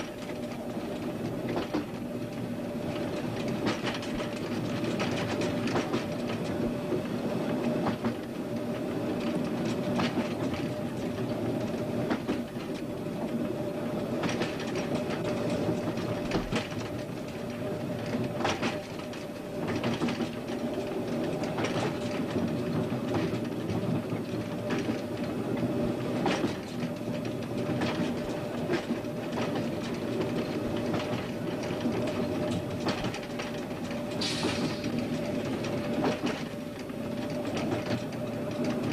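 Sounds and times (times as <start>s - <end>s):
train drone: 0.0s - 38.9s
train wheels clicking over rail joints: 0.0s - 38.9s.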